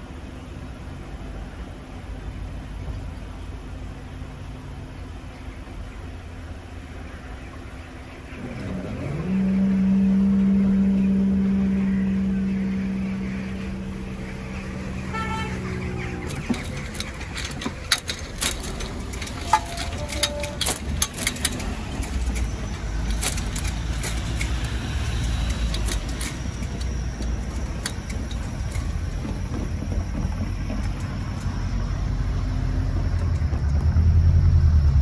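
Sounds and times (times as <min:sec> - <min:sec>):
low traffic rumble: 0:00.0 - 0:35.0
vehicles driving over level crossing: 0:00.0 - 0:35.0
sharp clicks and knocks: 0:15.1 - 0:31.8.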